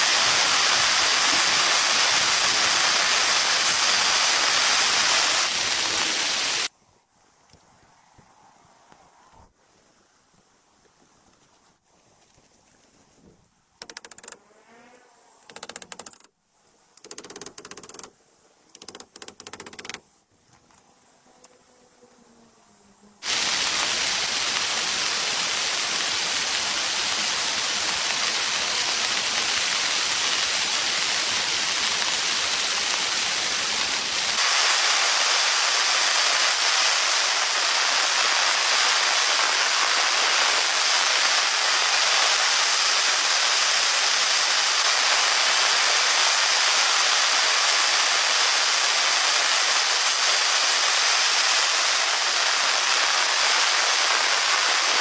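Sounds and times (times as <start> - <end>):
heavy rain hiss: 0.0 - 7.3, 13.8 - 20.5, 22.3 - 55.0.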